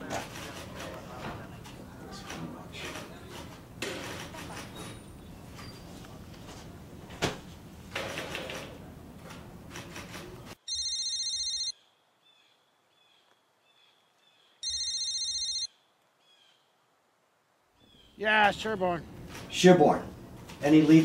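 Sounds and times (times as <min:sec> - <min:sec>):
mobile phone ringing: 0:10.6 - 0:11.8, 0:14.6 - 0:15.7
faint birdsong: 0:11.7 - 0:14.8, 0:15.7 - 0:17.0, 0:17.8 - 0:18.5.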